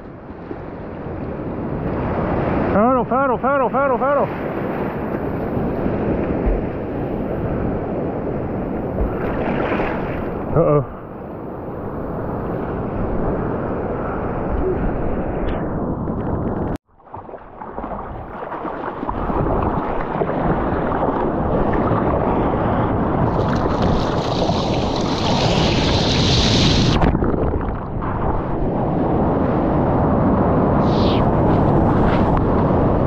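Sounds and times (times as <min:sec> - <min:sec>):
ocean surf roar: 0:00.1 - 0:16.7, 0:17.8 - 0:33.0
wind on microphone: 0:04.2 - 0:16.8, 0:17.5 - 0:33.0.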